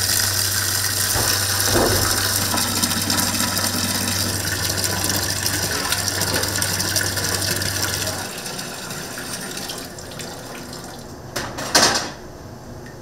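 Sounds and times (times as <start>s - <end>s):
kitchen machine motor humming: 0.0s - 11.5s.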